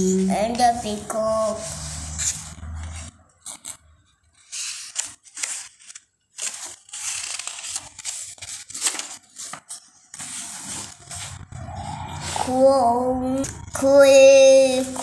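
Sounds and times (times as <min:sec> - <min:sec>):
paper pages rustling and crinkling: 0:01.6 - 0:11.5.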